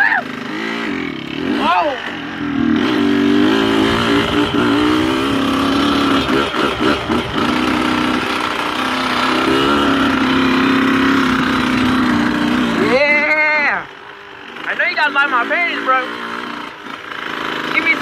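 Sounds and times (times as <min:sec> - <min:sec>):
dirt bike engine running: 0:00.0 - 0:18.0.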